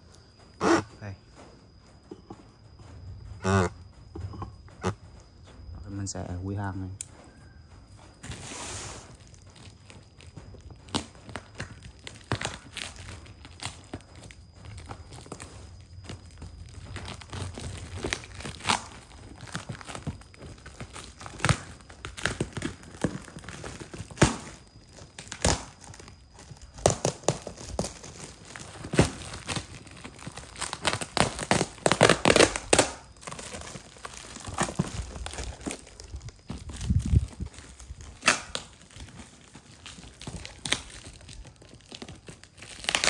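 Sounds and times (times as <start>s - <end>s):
plastic wrapping crinkling: 7.9s - 43.0s
tape tearing rips: 17.0s - 37.4s, 38.0s - 43.0s.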